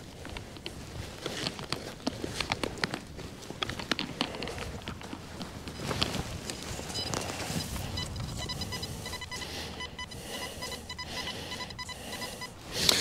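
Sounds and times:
metal detector beeping: 0:05.6 - 0:13.0.

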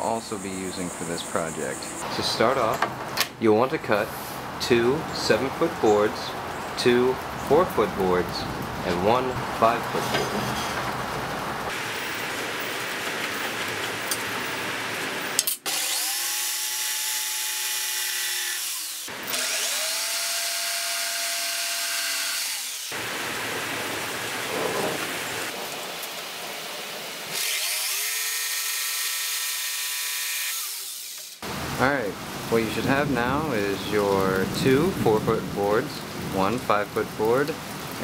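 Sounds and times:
electric jigsaw cutting wood: 0:15.4 - 0:23.0, 0:27.3 - 0:31.4.

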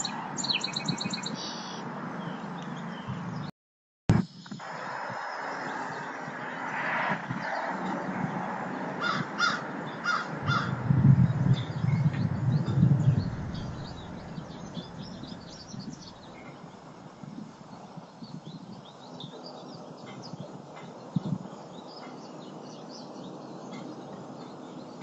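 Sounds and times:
small birds chirping: 0:00.0 - 0:03.5, 0:07.4 - 0:25.0
crow cawing: 0:09.0 - 0:10.8
loud low rumble: 0:10.2 - 0:16.7.

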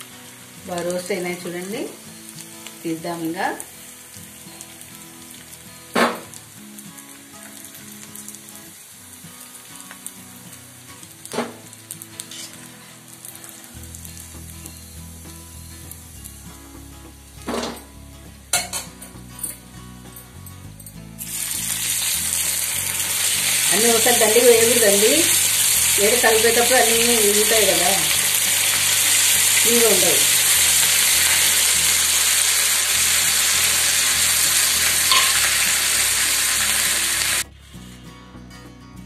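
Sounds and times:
food sizzling in hot oil: 0:00.0 - 0:37.5
steel spoon knocking pan: 0:35.1 - 0:35.6.

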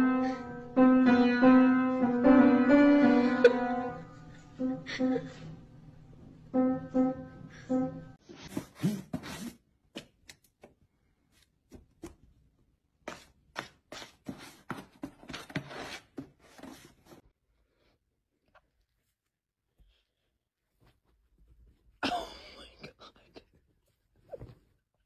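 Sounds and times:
piano notes: 0:00.0 - 0:08.2.

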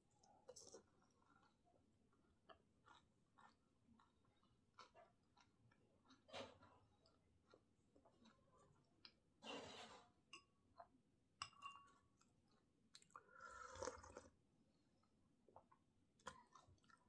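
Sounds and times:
person chewing: 0:02.4 - 0:09.2.

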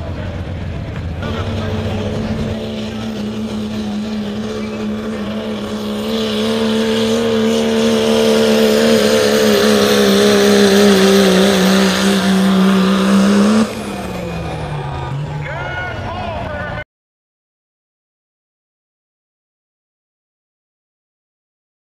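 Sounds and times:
diesel truck engine at high revs: 0:00.0 - 0:16.8.

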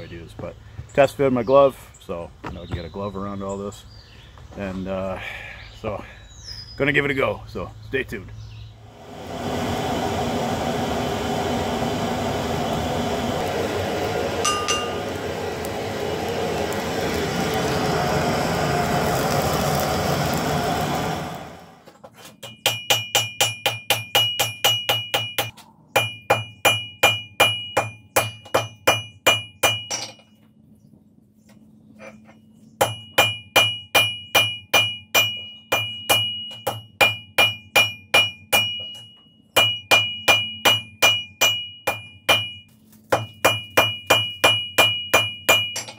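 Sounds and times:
forge fire rushing: 0:08.8 - 0:21.8
anvil ringing: 0:14.4 - 0:15.2, 0:22.4 - 0:30.3, 0:32.8 - 0:42.6, 0:43.4 - 0:45.9
hammer blows on anvil: 0:14.4 - 0:15.2, 0:32.8 - 0:45.9.

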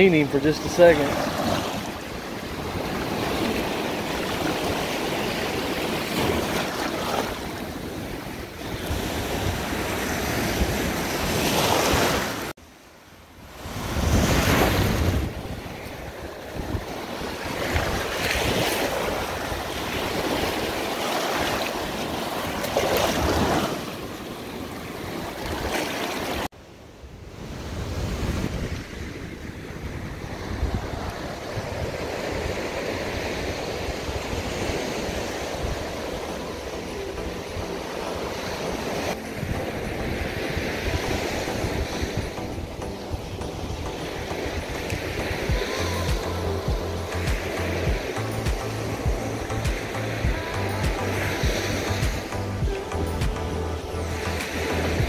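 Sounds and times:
surf washing on beach: 0:00.0 - 0:55.0
wind buffeting microphone: 0:13.6 - 0:20.8, 0:27.3 - 0:36.2.

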